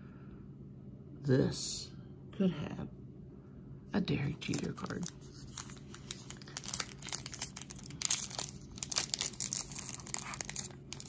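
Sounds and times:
plastic wrapper crinkling: 4.4s - 11.0s.

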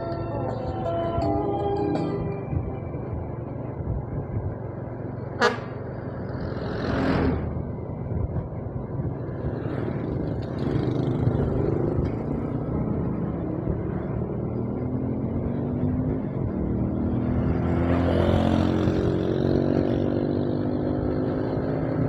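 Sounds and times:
vehicle rumble: 0.0s - 22.0s
vehicle rushing past: 5.0s - 8.4s.

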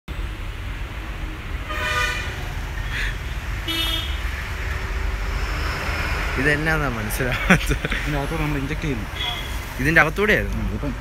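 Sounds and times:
low traffic rumble: 0.1s - 11.0s
car horn toots: 1.7s - 2.3s, 3.7s - 4.2s.

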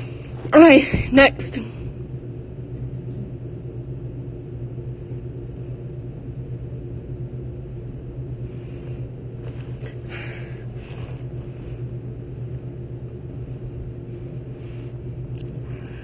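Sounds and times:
low room hum: 0.0s - 16.0s
soft rustle: 9.4s - 12.0s.

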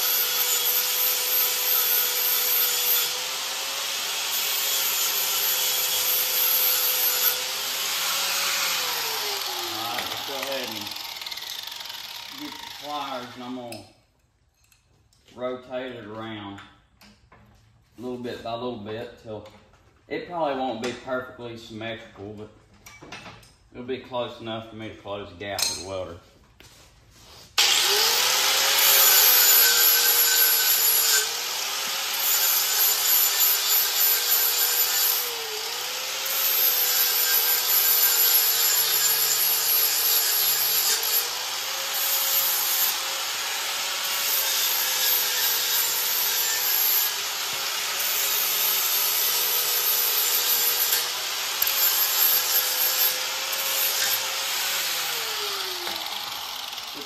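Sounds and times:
angle grinder grinding steel: 0.0s - 13.8s, 27.6s - 57.0s.

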